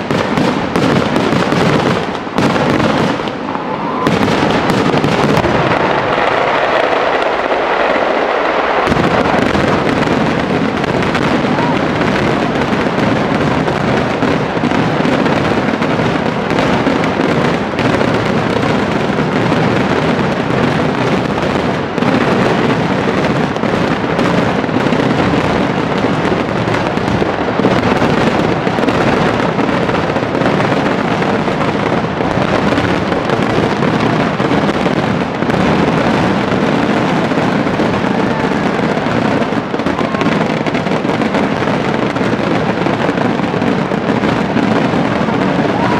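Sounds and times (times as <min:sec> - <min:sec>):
fireworks bangs and crackles: 0:00.0 - 0:45.9.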